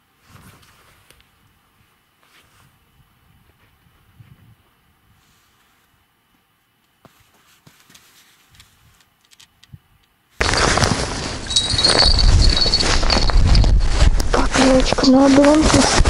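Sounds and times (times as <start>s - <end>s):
wind rumble on microphone: 2.6s - 5.3s, 10.9s - 16.0s
rustling: 7.0s - 9.6s, 10.4s - 16.0s.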